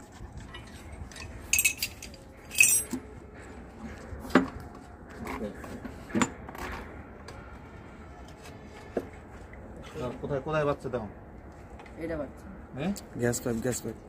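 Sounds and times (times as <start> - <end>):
metal tools clinking: 0.4 - 3.1
jangling rattles: 0.5 - 3.0.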